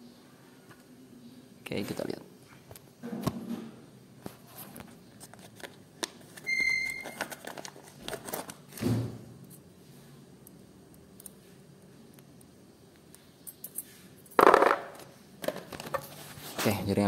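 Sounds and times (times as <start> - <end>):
plastic packet crinkling: 7.0 - 8.7.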